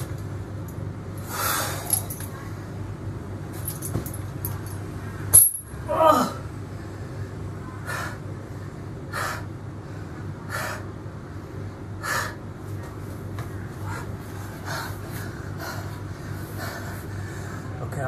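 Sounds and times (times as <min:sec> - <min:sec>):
man breathing hard: 0:01.2 - 0:02.2, 0:06.8 - 0:12.5, 0:13.8 - 0:17.8.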